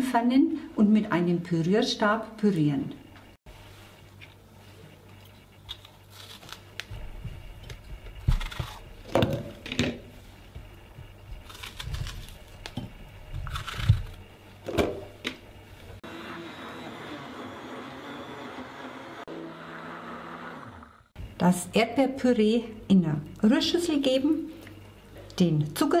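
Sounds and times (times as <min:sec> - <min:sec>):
immersion blender running: 0:16.0 - 0:21.2.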